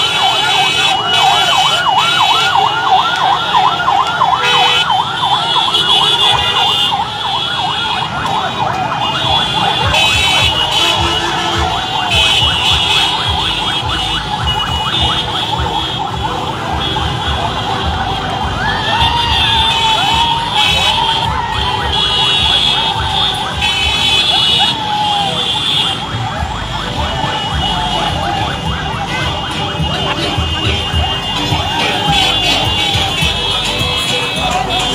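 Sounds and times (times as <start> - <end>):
siren yelping: 0.0 - 34.9
street crowd noise: 0.0 - 34.9.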